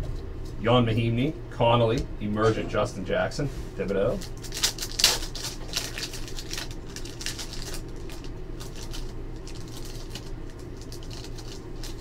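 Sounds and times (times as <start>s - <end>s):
low electrical hum: 0.0s - 12.0s
cards and foil pack rustling: 3.8s - 12.0s.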